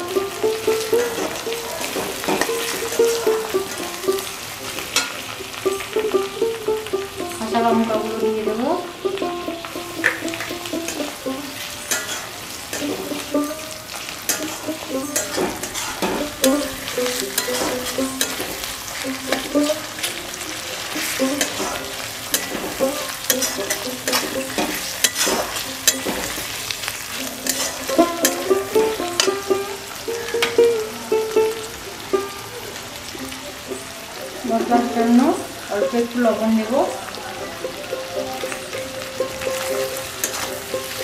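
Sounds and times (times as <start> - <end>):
spatula scraping pan: 0.0 - 6.2, 9.1 - 29.5, 39.5 - 41.0
food sizzling in oil: 0.0 - 41.0
soft melody: 0.0 - 41.0.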